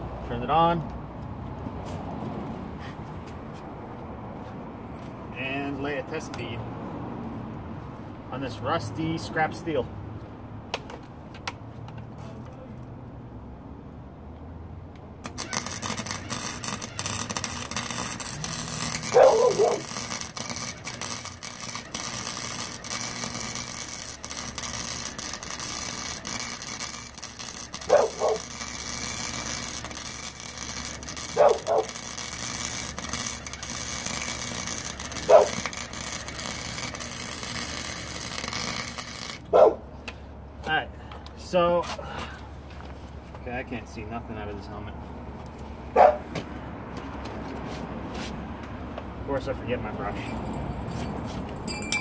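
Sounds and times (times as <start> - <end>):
welding arc crackling: 15.2 - 39.5.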